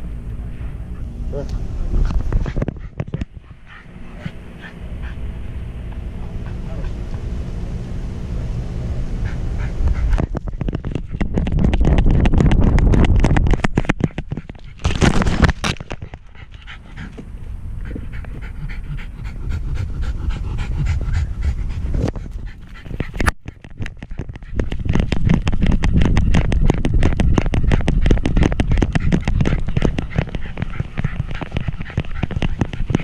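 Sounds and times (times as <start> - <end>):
low rumble of camera shifting: 0.0 - 33.0
dog panting fast: 9.2 - 13.0, 16.2 - 33.0.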